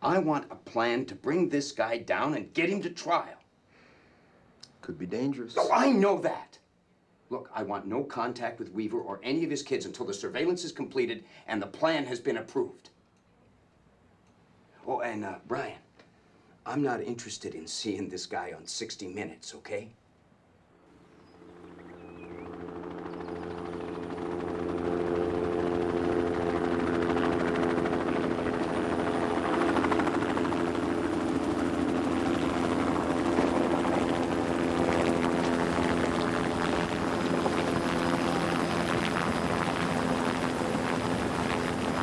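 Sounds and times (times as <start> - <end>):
helicopter flying: 20.8 - 42.0.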